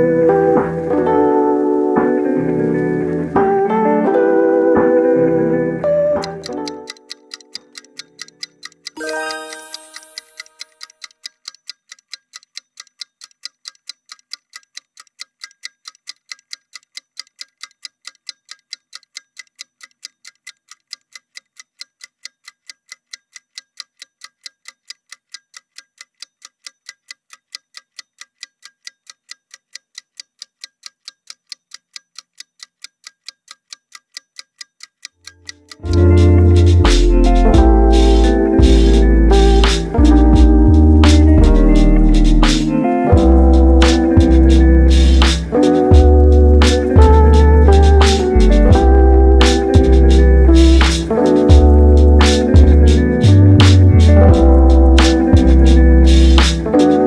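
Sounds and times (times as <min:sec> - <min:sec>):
clock ticking: 0:00.0 - 0:57.0
ringing tone: 0:09.0 - 0:10.8.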